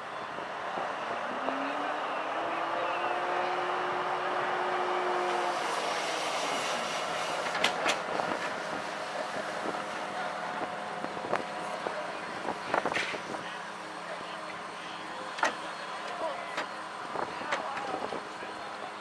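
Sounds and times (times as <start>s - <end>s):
steady whine: 0.0s - 19.0s
rush of steam: 1.4s - 14.2s.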